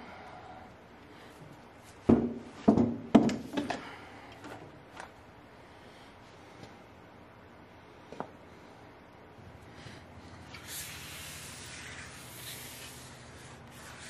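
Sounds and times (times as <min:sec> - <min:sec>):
hard knocks and clunks: 0:02.0 - 0:03.8.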